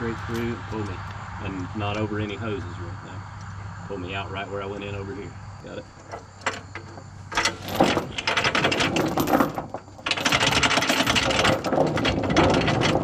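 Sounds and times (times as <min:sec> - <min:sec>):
chain rattling on wooden deck: 0:05.9 - 0:13.0.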